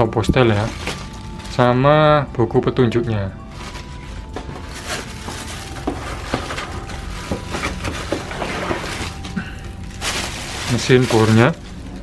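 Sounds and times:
plastic bag crinkling: 0.0 - 2.1, 2.9 - 12.0
cardboard box rustling: 3.6 - 11.4.

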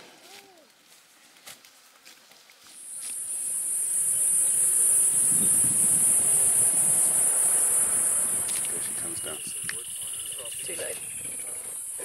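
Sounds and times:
cicadas droning: 2.6 - 12.0
low rushing noise: 3.2 - 9.9.

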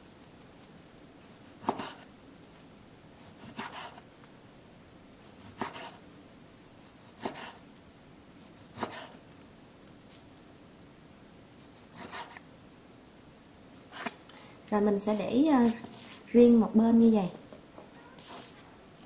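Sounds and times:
knife slicing raw meat: 8.6 - 9.2.

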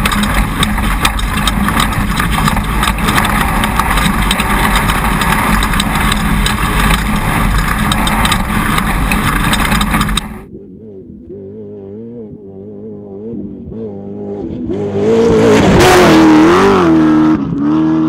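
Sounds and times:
chassis rattles and knocks: 0.0 - 10.5
wind noise: 0.0 - 10.5
race car engine: 0.0 - 18.0.

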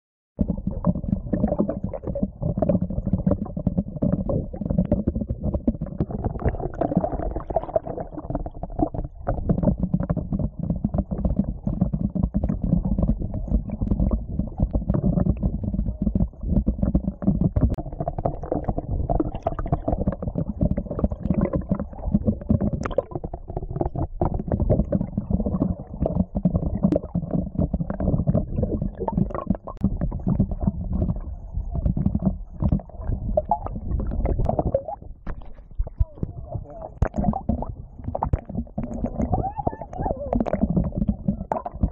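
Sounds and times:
muffled underwater rumble: 0.4 - 41.9.

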